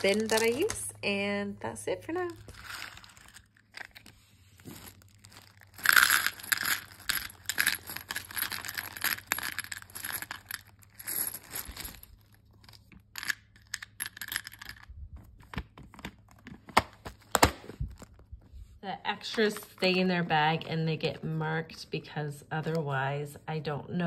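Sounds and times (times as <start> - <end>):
plastic pieces clattering into box: 0.0 - 0.9, 4.7 - 13.0.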